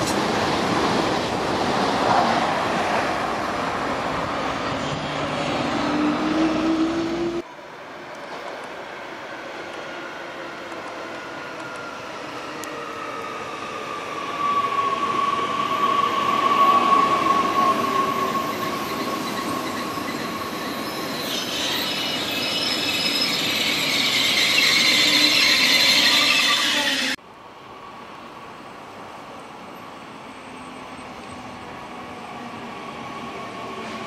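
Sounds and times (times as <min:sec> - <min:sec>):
train running on rails: 0:00.0 - 0:34.0
train wheel squeal: 0:11.6 - 0:27.2.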